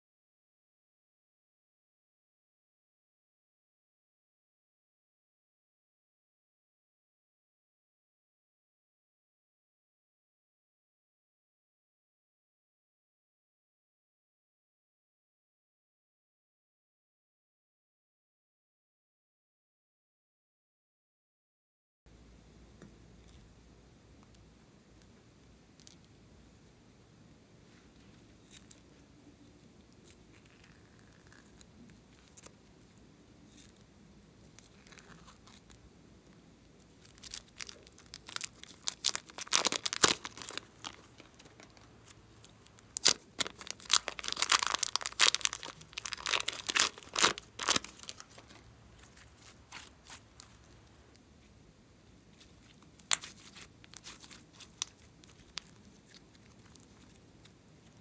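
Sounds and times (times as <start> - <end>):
sticky slime crackling and popping: 36.9 - 50.9, 52.4 - 58.0.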